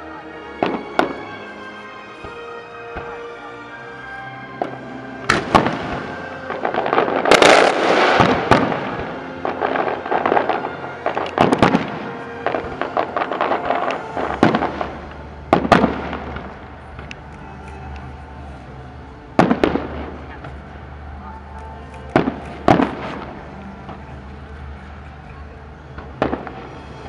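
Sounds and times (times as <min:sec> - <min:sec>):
firework shells bangs: 0:04.6 - 0:17.8
firework crackling: 0:04.6 - 0:27.0.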